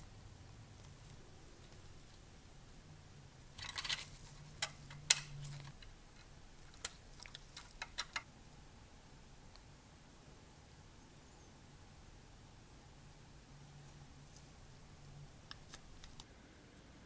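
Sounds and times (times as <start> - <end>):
plastic parts rustling: 3.5 - 8.2
plastic parts clicking: 3.6 - 8.3.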